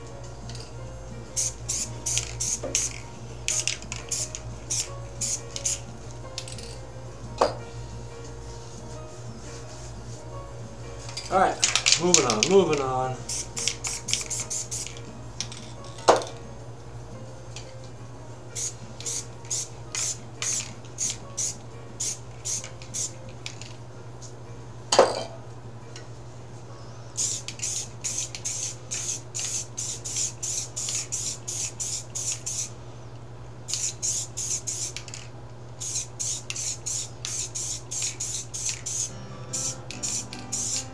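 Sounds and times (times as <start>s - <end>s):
spray paint can spraying: 1.4s - 5.8s, 13.3s - 15.7s, 18.6s - 23.7s, 27.2s - 32.7s, 33.7s - 40.9s.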